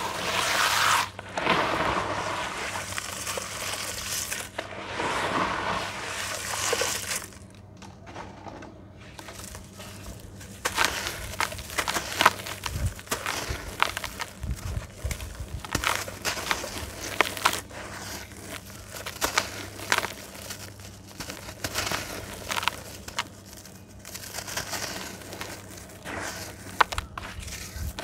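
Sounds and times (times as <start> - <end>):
dry slab crackling and crunching: 8.4 - 28.0.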